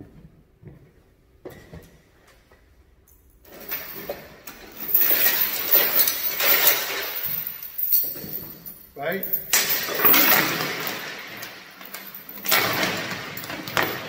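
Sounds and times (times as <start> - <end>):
chain links rattling and clinking: 3.1 - 14.0.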